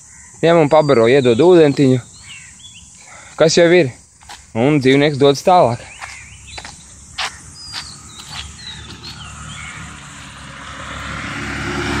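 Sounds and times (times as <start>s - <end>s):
bird chirps: 0.0s - 3.6s, 5.6s - 10.6s
road vehicle approaching: 6.3s - 12.0s.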